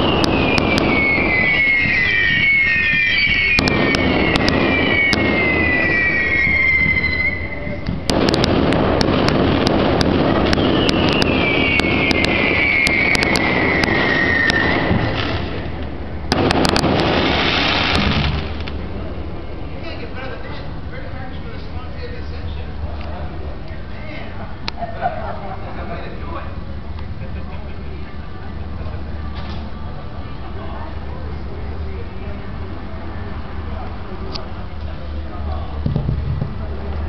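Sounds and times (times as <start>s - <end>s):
fireworks bursting and cracking: 0.0s - 19.1s
fireworks whistling: 0.0s - 19.1s.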